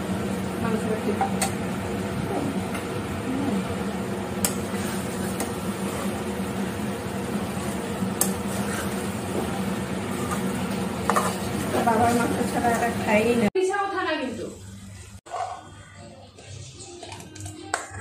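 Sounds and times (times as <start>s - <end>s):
metal spatula scraping a pan: 7.6s - 9.2s, 10.1s - 13.0s.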